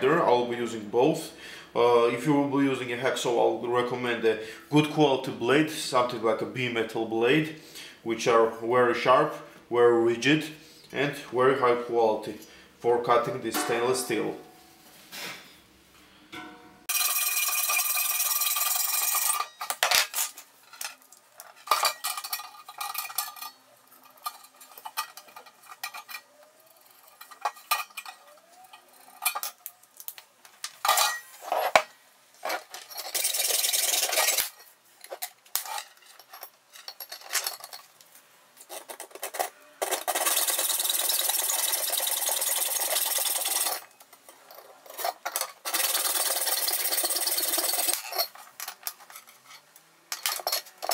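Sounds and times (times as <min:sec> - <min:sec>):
clicks and clinks of tools: 0:47.7 - 0:50.9.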